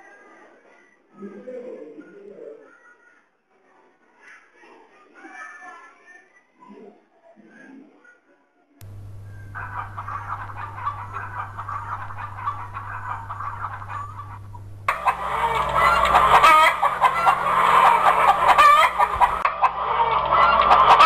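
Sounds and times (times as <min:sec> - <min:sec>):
hens clucking and squawking: 0:08.8 - 0:21.0.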